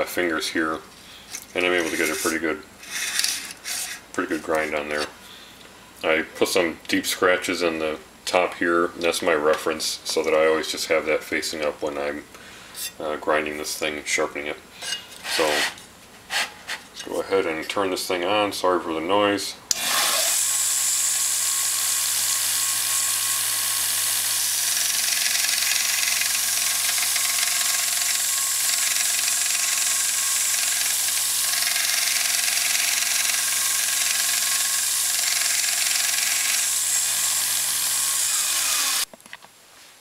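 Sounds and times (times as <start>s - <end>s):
belt sander motor hum: 19.7s - 39.1s.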